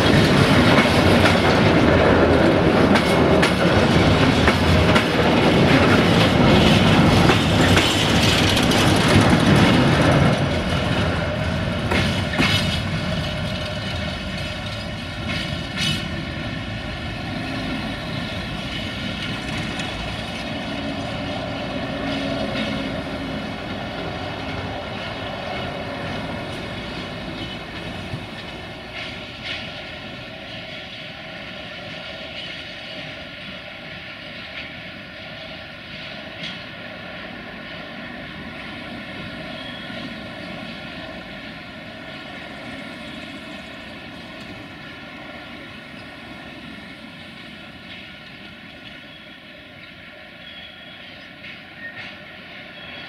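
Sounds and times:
wheels clicking over rail joints: 0.0s - 31.2s
train wheels droning on rail: 0.0s - 53.0s.

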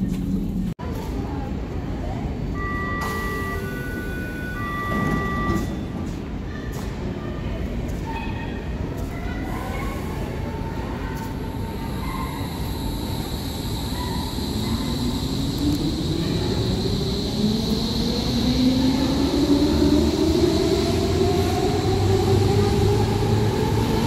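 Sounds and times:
electronic warning tones: 2.6s - 5.9s, 11.6s - 20.3s
train wheel noise: 7.7s - 24.0s
electric train motors whining: 11.4s - 24.0s.

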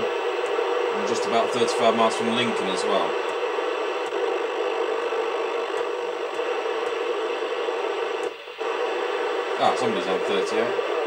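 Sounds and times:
radio static hissing: 0.0s - 11.0s.

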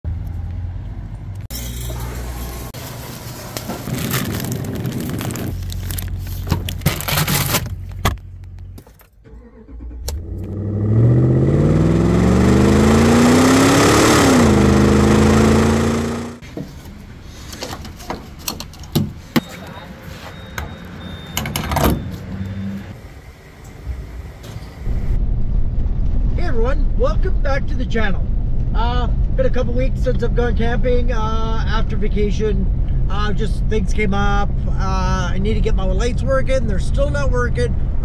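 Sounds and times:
truck engine running: 9.6s - 16.4s.

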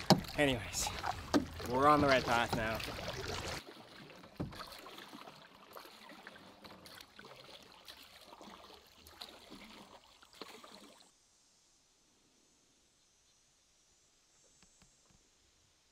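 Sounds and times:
sharp knock on canoe: 0.0s - 0.4s, 1.0s - 3.3s
water dripping: 0.0s - 3.7s
paddle dipping in water: 0.0s - 11.1s
water lapping: 0.0s - 11.1s.

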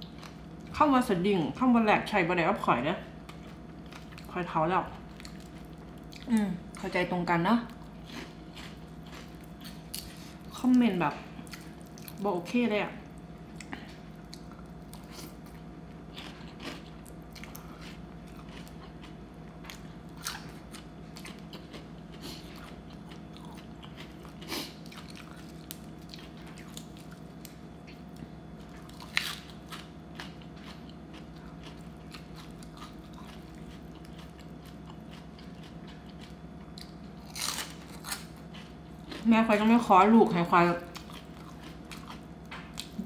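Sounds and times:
person chewing and crunching food: 0.0s - 0.7s, 3.2s - 7.0s, 7.6s - 12.3s, 13.0s - 43.0s
steady low hum: 0.0s - 43.0s.

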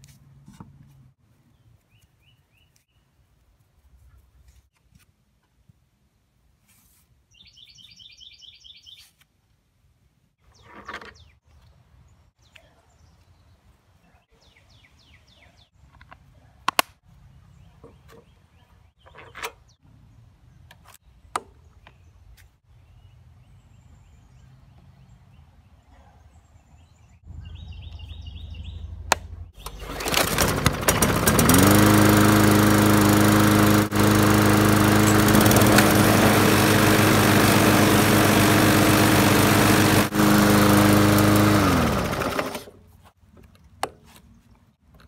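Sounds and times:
bird trills: 7.4s - 9.1s.

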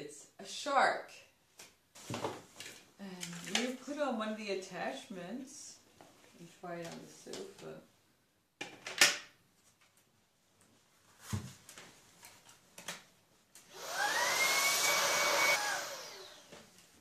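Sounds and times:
cordless vacuum motor whining: 13.7s - 16.6s.

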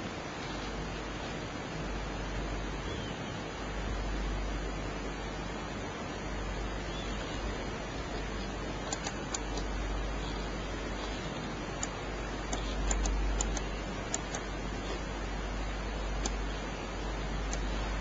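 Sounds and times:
low hum: 0.0s - 18.0s
steady hiss: 0.0s - 18.0s
computer mouse clicks: 8.1s - 10.4s, 11.0s - 15.0s, 16.2s - 16.5s, 17.5s - 17.7s.

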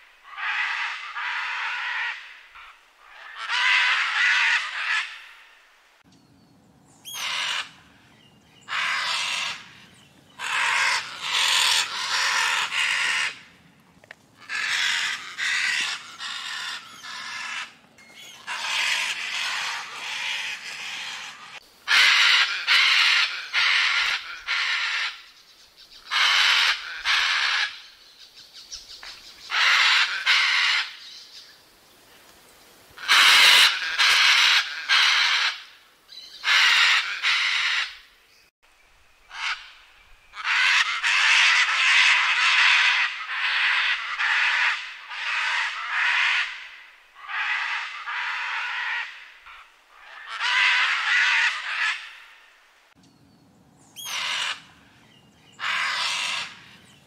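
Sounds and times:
macaw screaming: 0.2s - 5.4s, 7.0s - 7.8s, 8.7s - 13.5s, 14.4s - 25.3s, 26.0s - 27.9s, 29.5s - 31.0s, 33.0s - 38.1s, 39.3s - 39.8s, 40.4s - 52.4s, 54.0s - 54.8s, 55.6s - 56.8s.

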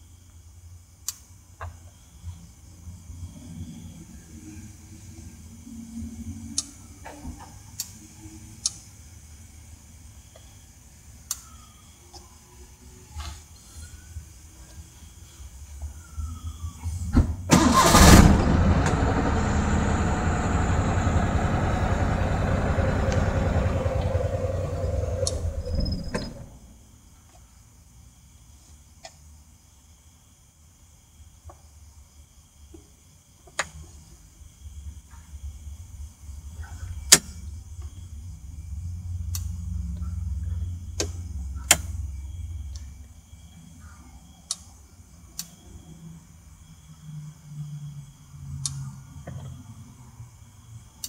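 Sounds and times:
engine cranking and idling: 17.5s - 26.6s.

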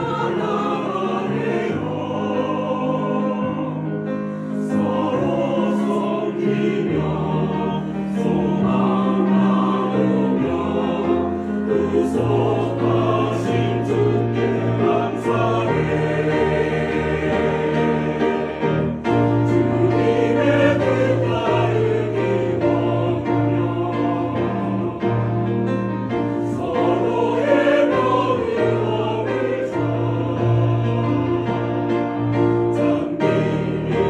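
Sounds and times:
choir singing a hymn: 0.0s - 34.0s.

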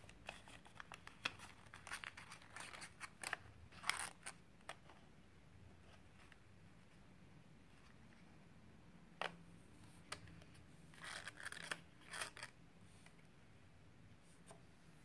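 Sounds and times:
paper crinkling and rustling: 0.0s - 4.4s, 10.9s - 12.6s.

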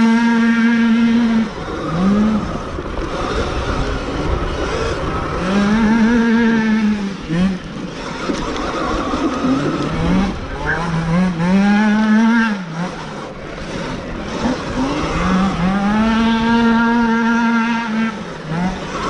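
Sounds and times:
electric dirt bike motor whine: 0.0s - 19.0s
rough rumble: 0.0s - 19.0s
wind noise: 1.1s - 11.7s.

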